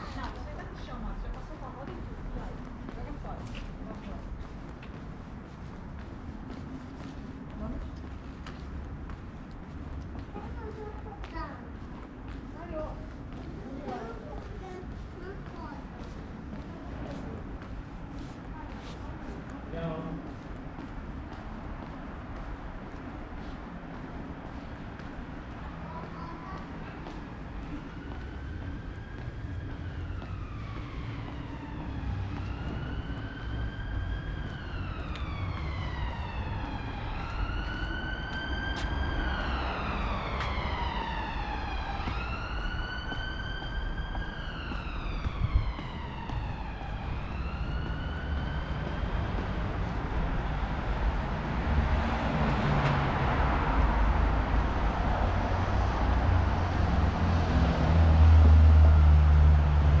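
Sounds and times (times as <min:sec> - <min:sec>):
street traffic: 0:00.0 - 1:00.0
emergency vehicle siren wailing: 0:21.8 - 1:00.0.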